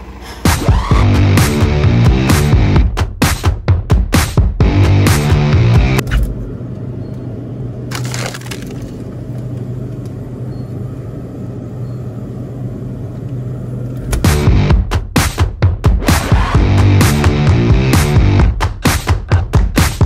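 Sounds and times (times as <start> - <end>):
background music: 0.4 - 6.0, 14.1 - 20.0
store ambience hum: 6.0 - 14.7
packaging crinkle: 7.9 - 9.2.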